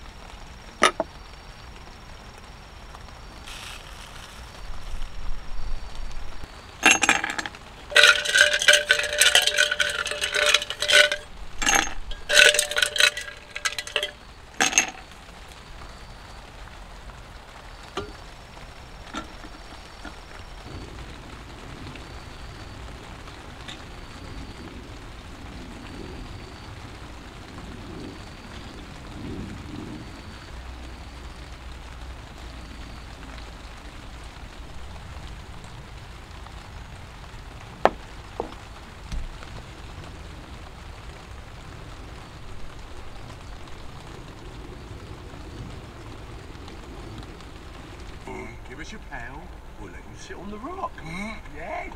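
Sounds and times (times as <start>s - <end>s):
rain falling: 0.0s - 51.9s
hard objects clinking and clattering: 0.8s - 1.1s, 6.8s - 15.2s, 18.0s - 18.3s, 19.0s - 20.4s, 37.9s - 38.6s.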